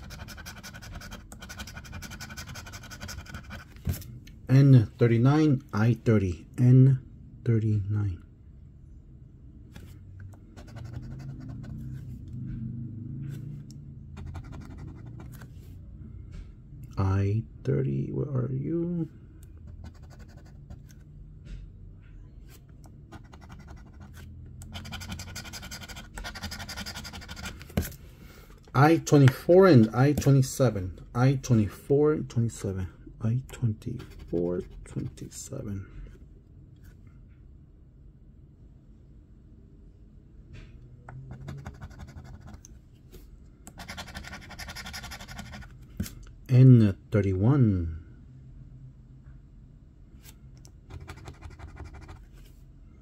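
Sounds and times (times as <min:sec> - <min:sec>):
coin scratching lottery ticket: 0:00.0 - 0:03.8, 0:10.6 - 0:11.8, 0:14.2 - 0:15.4, 0:19.8 - 0:20.8, 0:23.1 - 0:27.6, 0:41.3 - 0:42.6, 0:43.7 - 0:45.7, 0:50.9 - 0:52.2
coin scraping scratch-off ticket: 0:43.8 - 0:45.7.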